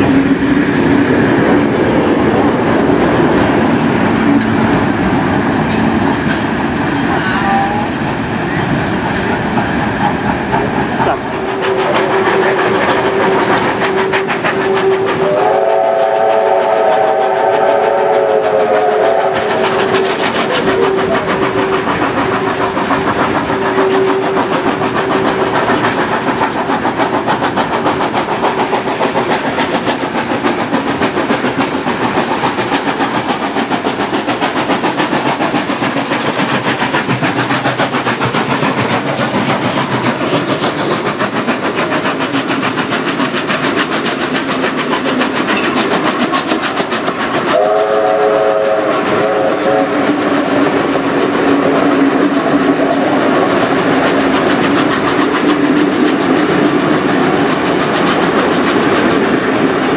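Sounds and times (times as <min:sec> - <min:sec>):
train rumble and clickety-clack: 0:00.0 - 0:59.9
steam whistle steady tone: 0:11.1 - 0:25.6, 0:47.5 - 0:53.4.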